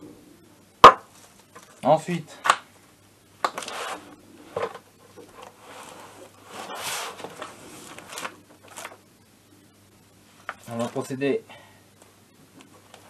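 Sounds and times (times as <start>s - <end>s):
pages rustling: 3.4s - 9.0s.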